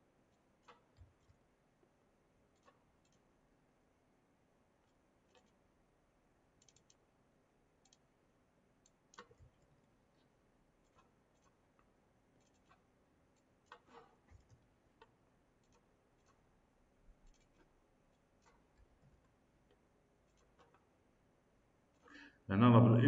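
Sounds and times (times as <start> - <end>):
computer mouse clicks: 0.3 - 1.4, 2.5 - 3.3, 4.9 - 5.6, 6.6 - 7.0, 7.8 - 8.1, 8.8 - 9.7, 10.8 - 12.8, 13.4 - 16.4, 17.1 - 18.8.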